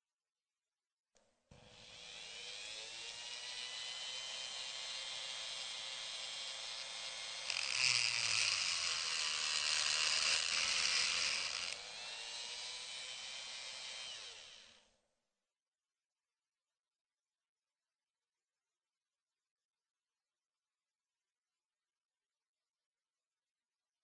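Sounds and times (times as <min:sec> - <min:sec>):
whirring drill-like machinery: 0:01.6 - 0:14.9
harsh grinding: 0:07.4 - 0:11.8.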